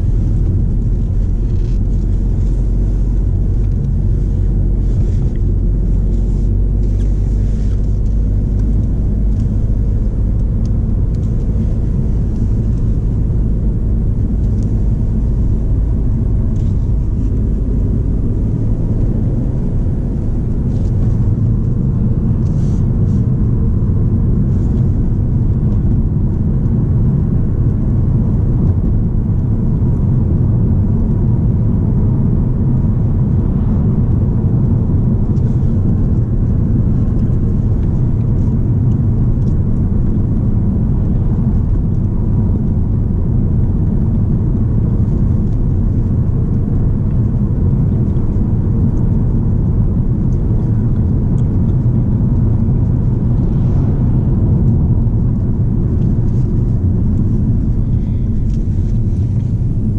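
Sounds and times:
car engine drone: 0.0 - 59.9
tyre and road rumble: 0.0 - 59.9.

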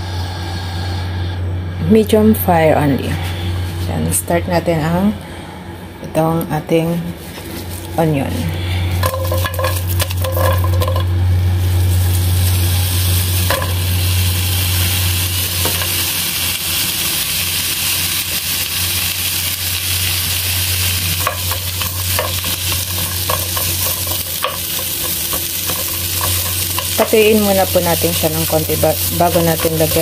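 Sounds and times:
low hum: 0.0 - 30.0
onions sizzling in a wok: 8.8 - 30.0
onions dropped into a wok: 9.0 - 11.2, 13.5 - 13.9.

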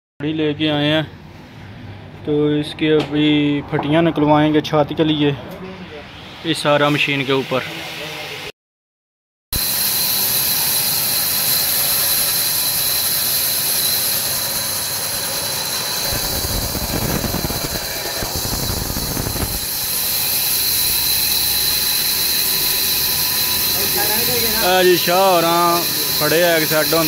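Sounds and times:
band saw whining: 9.6 - 27.0
saw blade cutting wood: 9.6 - 27.0.

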